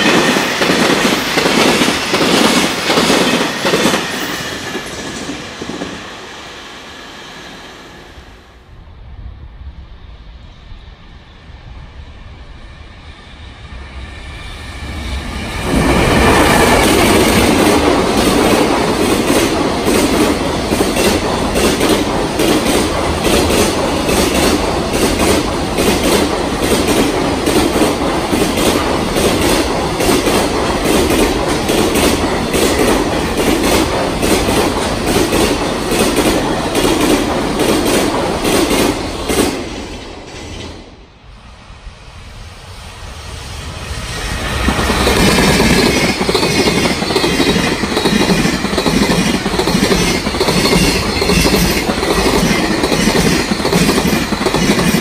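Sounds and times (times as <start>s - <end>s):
train approaching: 0.0s - 55.0s
freight train wheels clattering: 15.6s - 41.0s, 44.2s - 55.0s.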